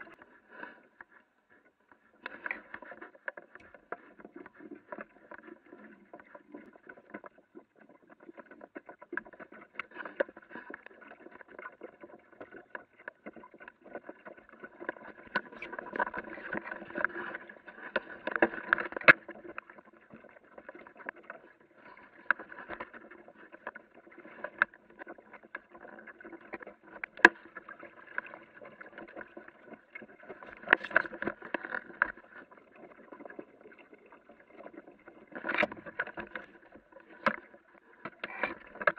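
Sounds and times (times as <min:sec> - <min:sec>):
water lapping against a hull: 0:00.0 - 0:38.9
small clicks and knocks: 0:01.9 - 0:33.8, 0:35.3 - 0:38.9.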